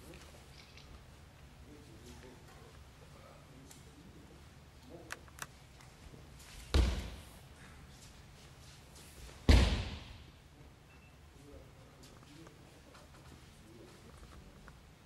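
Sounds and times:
body thudding onto a mat: 0:06.7 - 0:07.2, 0:09.4 - 0:10.1.

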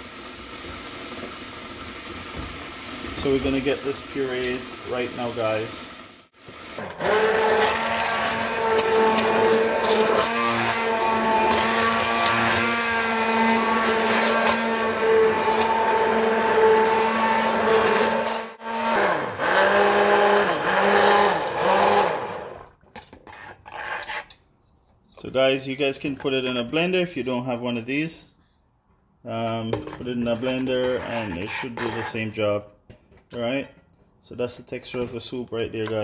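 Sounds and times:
immersion blender pureeing soup: 0:00.0 - 0:22.8.

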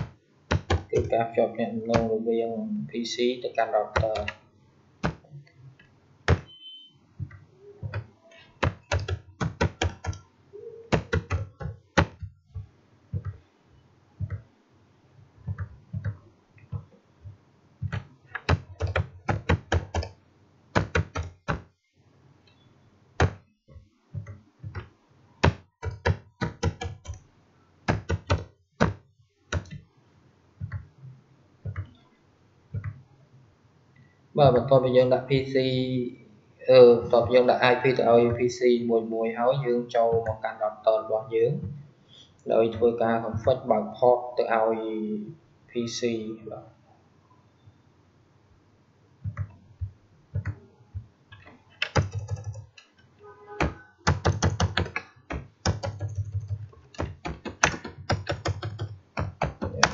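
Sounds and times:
computer keyboard typing: 0:00.0 - 0:01.3, 0:03.9 - 0:04.4, 0:07.2 - 0:10.3, 0:10.9 - 0:13.4, 0:15.4 - 0:21.7, 0:24.2 - 0:27.2, 0:27.9 - 0:29.8, 0:50.3 - 0:50.6, 0:51.8 - 0:52.8, 0:53.6 - 0:59.9.

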